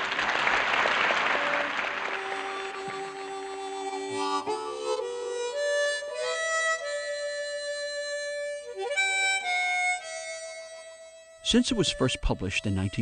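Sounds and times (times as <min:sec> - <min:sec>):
slow background music: 0:02.2 - 0:13.0.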